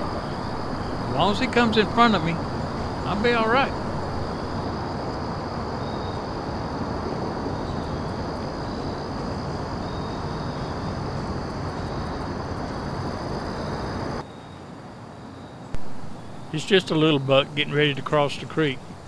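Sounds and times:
wind blowing across microphone: 0.0 - 14.2.

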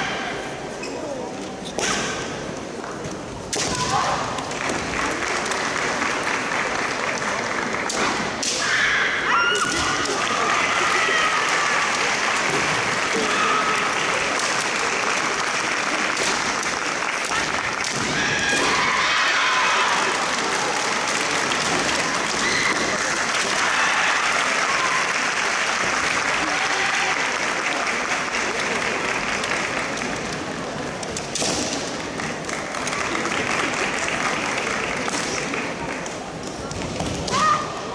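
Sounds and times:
spectators clapping: 4.4 - 8.3, 10.0 - 18.3, 18.9 - 31.0, 31.9 - 36.6.

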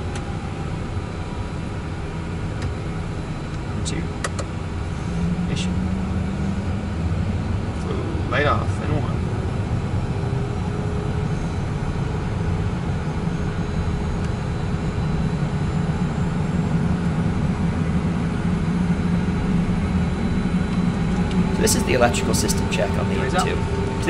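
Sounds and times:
jet engines idling: 0.0 - 24.0
faint high engine tone: 18.2 - 24.0.

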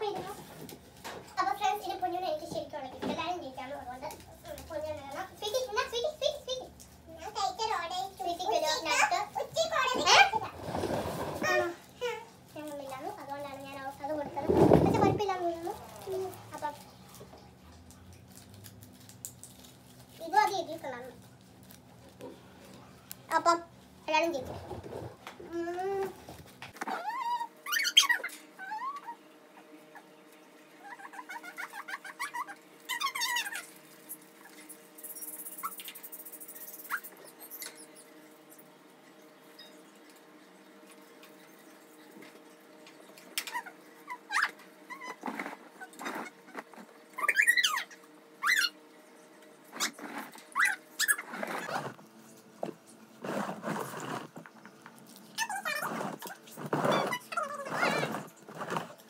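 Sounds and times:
parrot squawking: 26.9 - 30.0, 30.8 - 33.8, 47.1 - 48.8, 49.8 - 51.8.

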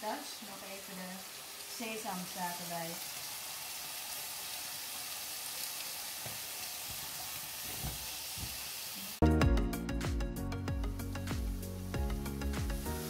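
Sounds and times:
courgette sizzling in a pan: 0.0 - 9.2, 10.9 - 13.0
loud background music: 9.2 - 13.0.

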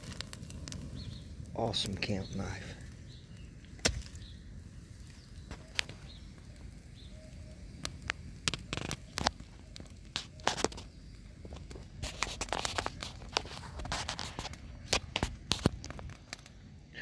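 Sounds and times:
leaves crackling and snapping: 0.0 - 17.0
knife stabbing into ground: 3.8 - 4.2.

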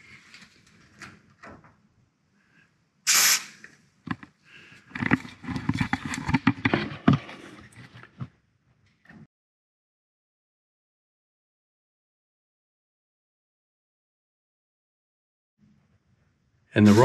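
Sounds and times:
aerosol spray hiss: 3.1 - 3.6.

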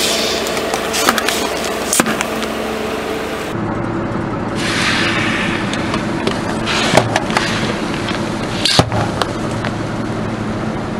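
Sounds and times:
car engine humming: 0.0 - 10.9
hiss: 4.6 - 5.8.

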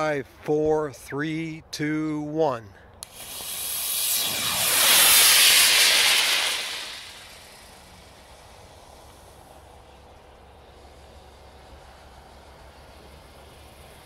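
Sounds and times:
rocket motor hissing: 3.0 - 14.0.

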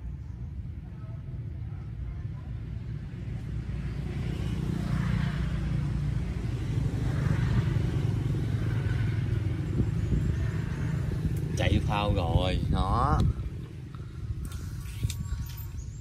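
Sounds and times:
motor engine droning: 3.4 - 16.0.

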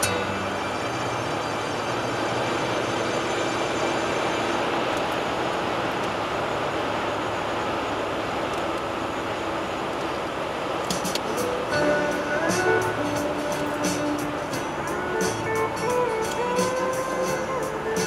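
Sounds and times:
car tyre and wind noise: 0.0 - 12.2.

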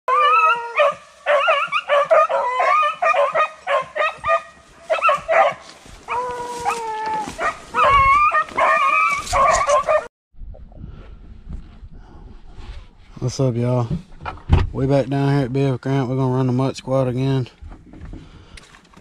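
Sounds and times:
hounds baying and yelping: 0.1 - 10.1.

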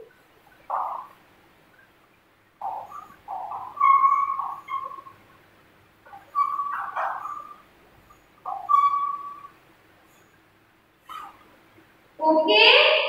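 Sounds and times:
high chalk squeaks: 2.7 - 5.2, 6.1 - 10.4, 11.0 - 11.5.

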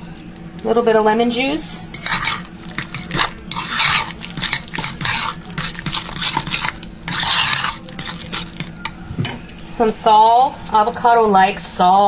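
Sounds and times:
fork stirring mashed avocado: 1.9 - 9.0.

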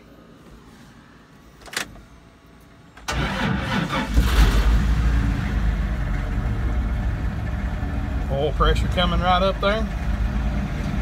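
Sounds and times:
car engine starting and running: 2.8 - 11.0.

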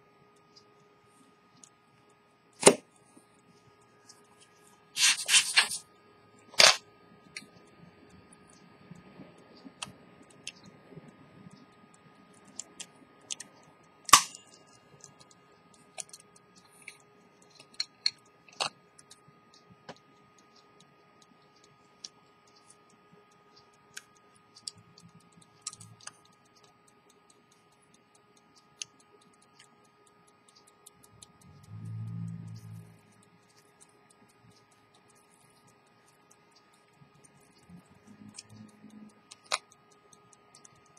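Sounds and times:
faint ticks: 7.3 - 40.9
metallic clicks and taps: 8.5 - 40.9.

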